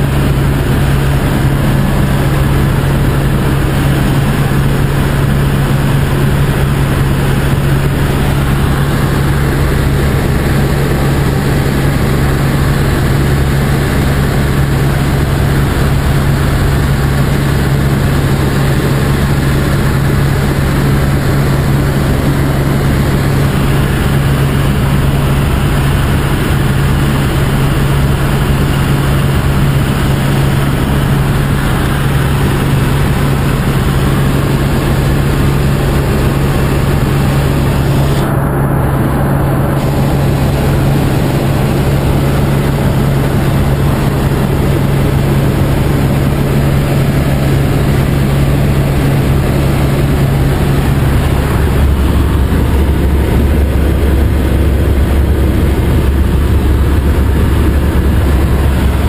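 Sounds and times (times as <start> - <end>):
helicopter cabin noise: 0.0 - 59.0.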